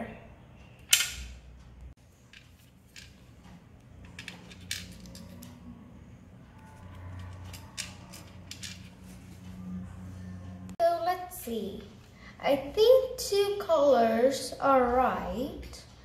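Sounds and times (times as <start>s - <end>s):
plastic pegs clicking: 7.2s - 8.9s.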